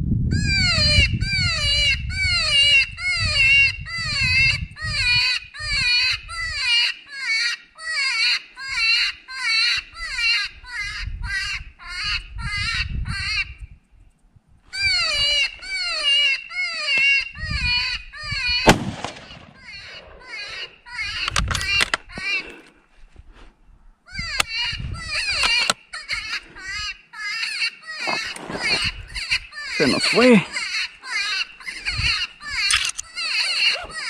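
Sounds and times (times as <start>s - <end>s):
predator call distress cry: 14.8s - 22.6s, 24.1s - 34.0s.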